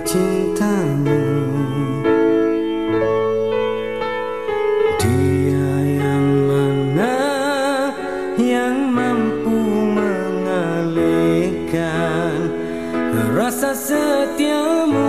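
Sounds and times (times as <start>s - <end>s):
man singing with vibrato: 0.0s - 2.9s, 5.0s - 15.0s
keyboard chords: 0.0s - 15.0s.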